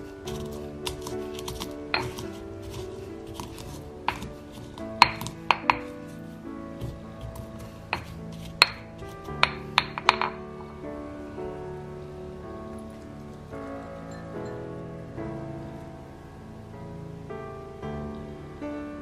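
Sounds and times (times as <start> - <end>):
soft background music: 0.0 - 19.0
pestle pounding in stone mortar: 0.3 - 5.9, 6.8 - 10.4.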